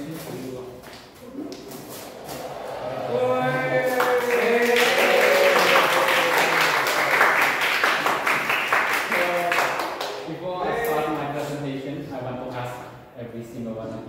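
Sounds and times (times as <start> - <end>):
students clapping and cheering: 1.9 - 10.3.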